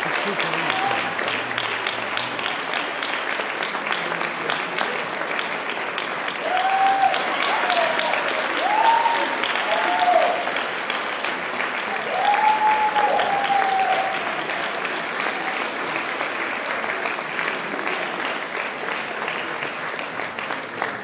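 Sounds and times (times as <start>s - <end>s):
audience applauding: 0.0s - 21.0s
drawn-out cheer: 6.4s - 10.6s, 11.8s - 15.6s.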